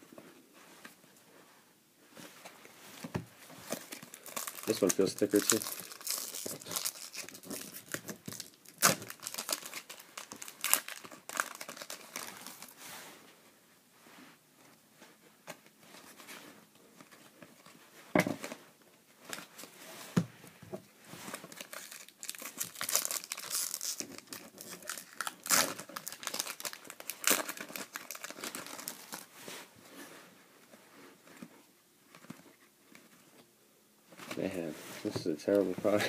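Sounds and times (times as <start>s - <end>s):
foil wrapper tearing and crinkling: 3.8s - 12.7s, 21.5s - 29.3s.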